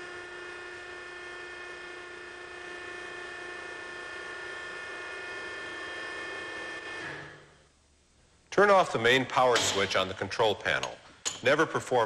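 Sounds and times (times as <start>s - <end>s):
hydraulic motor humming with whine: 0.0s - 7.6s.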